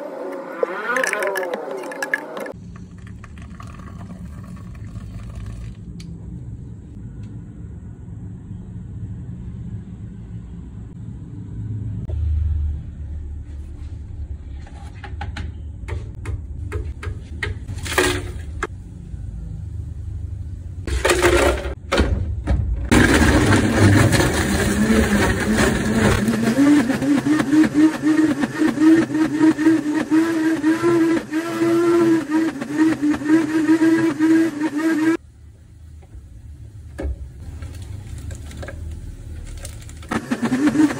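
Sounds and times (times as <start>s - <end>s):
blender blending ice: 0.0s - 2.6s, 22.9s - 35.2s, 39.6s - 40.9s.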